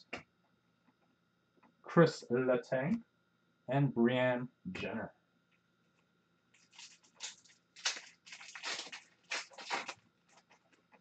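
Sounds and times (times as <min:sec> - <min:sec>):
wrapper tearing and crinkling: 0:06.6 - 0:10.8.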